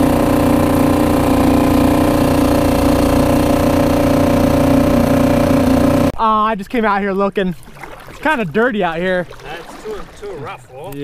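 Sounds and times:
small outboard motor running: 0:00.0 - 0:06.2.

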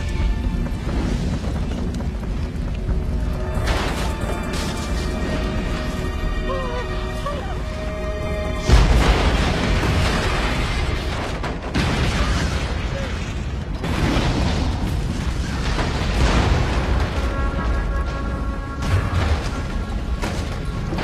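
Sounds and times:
dramatic orchestral score: 0:00.0 - 0:21.0
explosion booms: 0:08.6 - 0:17.4.

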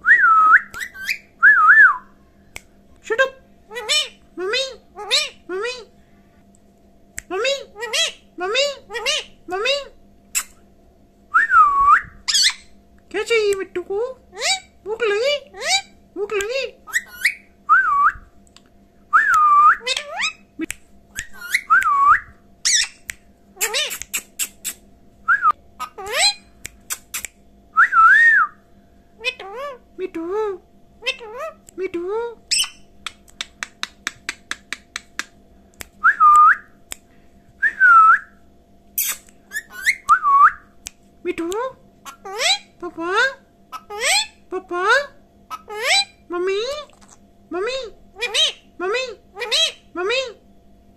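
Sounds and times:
parakeet wavering whistles: 0:00.2 - 0:01.8, 0:11.4 - 0:12.8, 0:16.9 - 0:18.1, 0:21.2 - 0:23.0, 0:32.5 - 0:32.9, 0:39.0 - 0:40.7
parakeet rising chirps: 0:00.7 - 0:01.3, 0:12.2 - 0:12.8, 0:16.8 - 0:17.5, 0:21.2 - 0:21.8, 0:22.6 - 0:24.8, 0:32.5 - 0:33.0, 0:39.0 - 0:40.2
parakeet chattering: 0:00.8 - 0:01.3, 0:03.7 - 0:05.9, 0:07.4 - 0:10.6, 0:12.3 - 0:12.7, 0:14.3 - 0:17.4, 0:19.8 - 0:20.5, 0:21.2 - 0:21.7, 0:22.6 - 0:24.8, 0:25.8 - 0:27.3, 0:29.2 - 0:29.8, 0:31.0 - 0:31.7, 0:32.4 - 0:35.2, 0:39.0 - 0:40.1, 0:42.0 - 0:50.4
parakeet clicking: 0:32.6 - 0:37.0
parakeet screech: 0:39.0 - 0:40.1.

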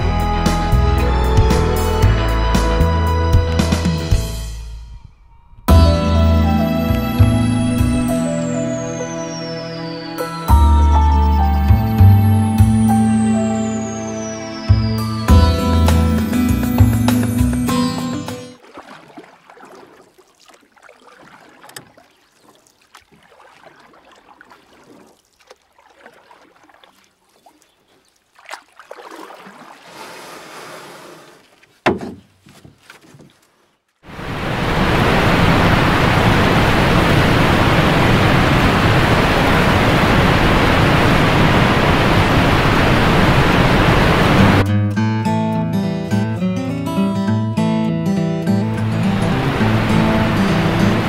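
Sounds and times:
river rapids rushing water: 0:34.1 - 0:44.6, 0:48.8 - 0:51.0.

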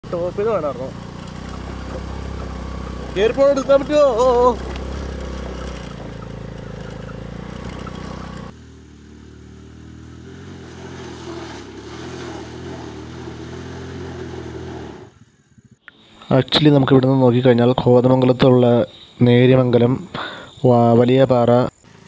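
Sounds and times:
scooter engine running: 0:00.0 - 0:15.8.

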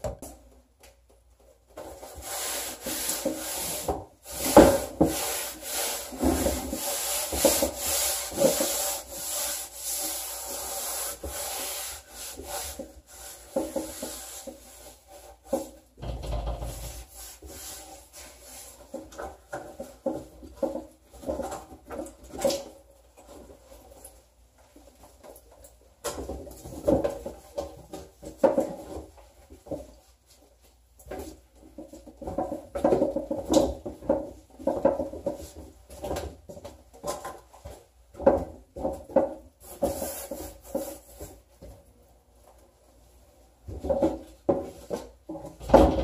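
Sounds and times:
gloved hands scrubbing surface: 0:02.0 - 0:15.7.

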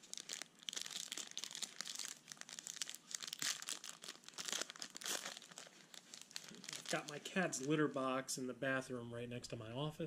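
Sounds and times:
foil wrapper crinkling: 0:00.0 - 0:07.8.

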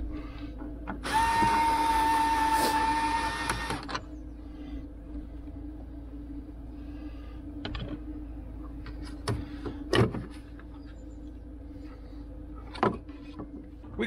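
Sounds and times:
steady low hum: 0:00.0 - 0:14.0
cordless screwdriver whirring: 0:01.0 - 0:03.9.

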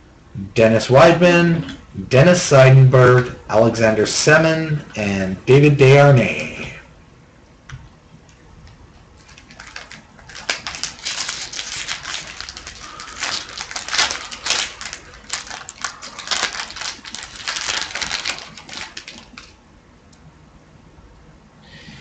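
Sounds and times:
foil wrapper crinkling: 0:09.2 - 0:19.6.

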